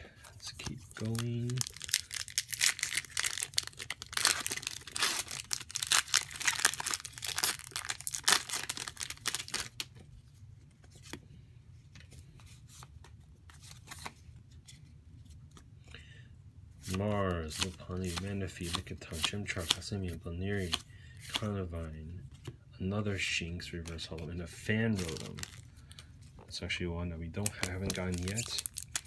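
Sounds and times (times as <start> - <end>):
plastic wrapper crinkling and tearing: 0.4 - 9.9, 25.0 - 26.1, 27.4 - 29.0.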